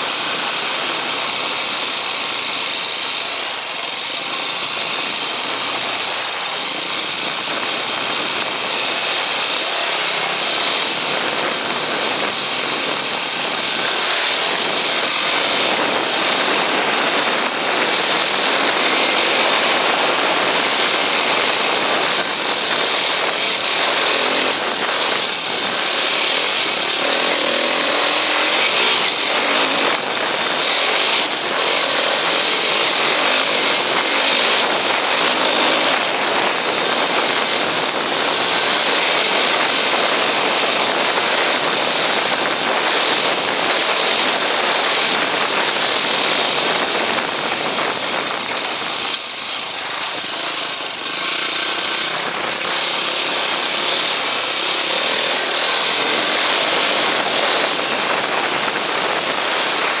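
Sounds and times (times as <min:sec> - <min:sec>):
dirt bike engine running: 0:00.0 - 1:00.0
wind and road noise: 0:00.0 - 1:00.0.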